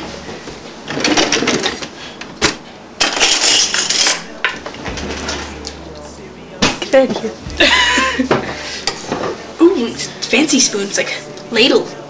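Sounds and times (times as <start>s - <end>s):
metal cutlery clattering: 0.9s - 5.6s.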